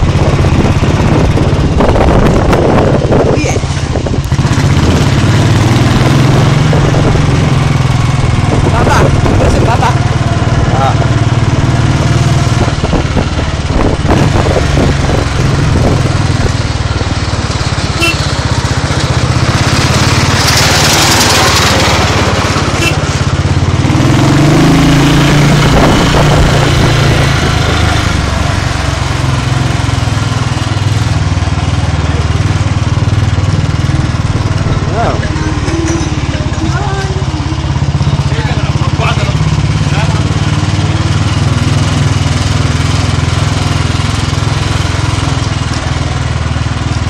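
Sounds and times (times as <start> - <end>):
wind noise on microphone: 0.0 - 18.2, 23.3 - 31.4
motorcycle engine running: 0.0 - 47.0.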